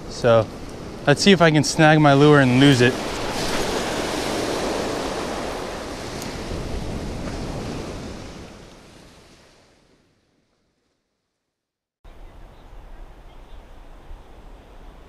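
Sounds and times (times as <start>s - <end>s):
wind buffeting microphone: 0.0s - 9.6s
surf breaking on sand: 0.0s - 9.9s.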